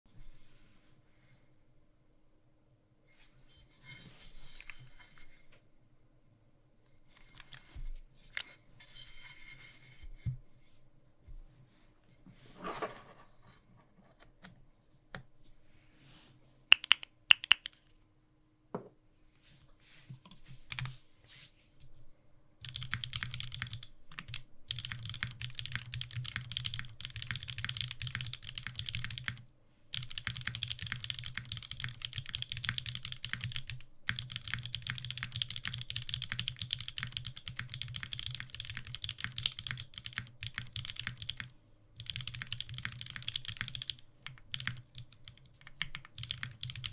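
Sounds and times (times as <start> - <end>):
fast typing on mechanical keyboard: 22.6 - 46.9.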